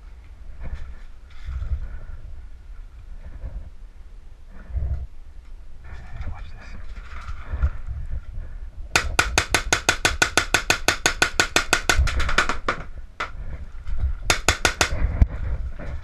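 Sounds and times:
paintball marker firing: 9.0 - 12.9, 14.3 - 15.2.

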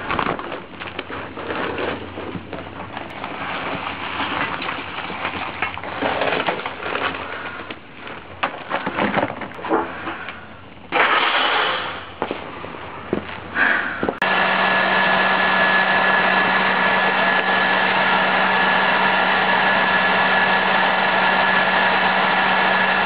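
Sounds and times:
leaf blower forcing air: 9.8 - 12.1, 13.5 - 23.0.

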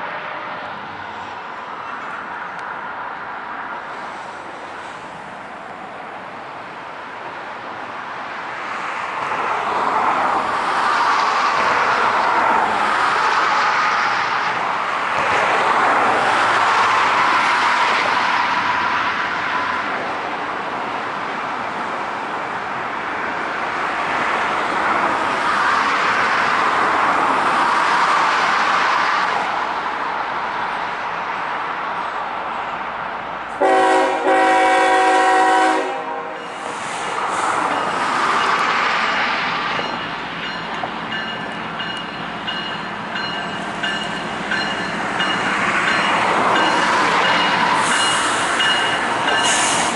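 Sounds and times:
road traffic rushing past: 0.0 - 49.9.

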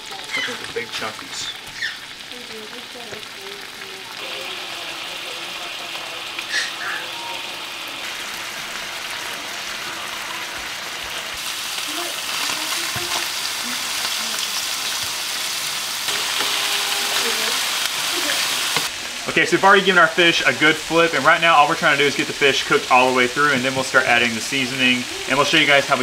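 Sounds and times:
fish sizzling in butter: 0.0 - 26.0
spatula scraping a pan: 16.1 - 18.9.

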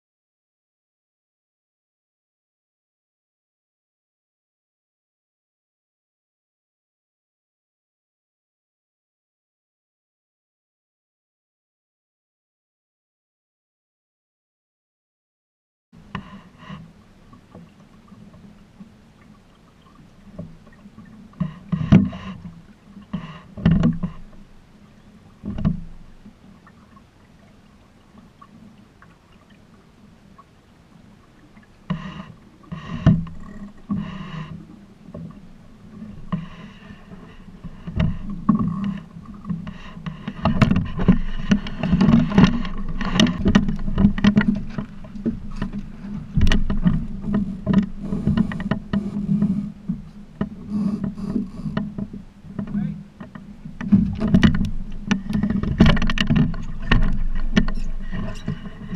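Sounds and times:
knocks and thumps from boat: 16.0 - 27.1, 31.3 - 58.9
water splashing against boat hull: 16.0 - 58.9.

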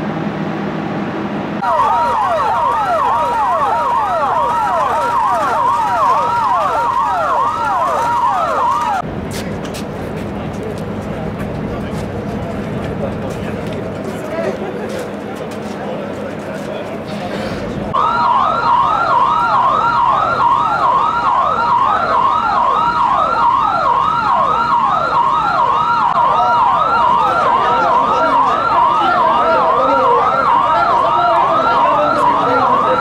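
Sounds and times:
electronic siren yelping: 1.6 - 9.0, 18.0 - 33.0.

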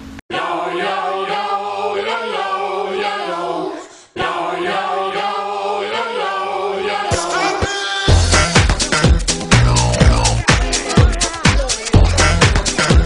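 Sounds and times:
choir singing sustained chords: 0.3 - 8.2.

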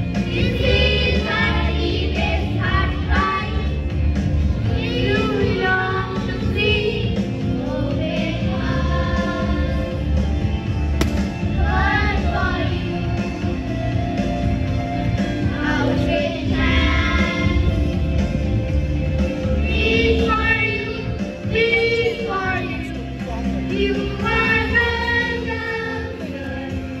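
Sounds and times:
children's choir singing: 0.1 - 3.8, 4.6 - 10.0, 11.4 - 13.5, 15.4 - 18.0, 19.5 - 22.9, 23.7 - 26.6
instrumental accompaniment: 10.4 - 25.8.

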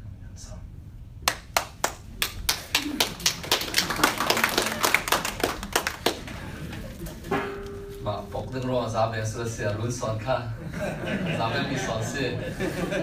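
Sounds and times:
audience applauding: 1.3 - 6.8.

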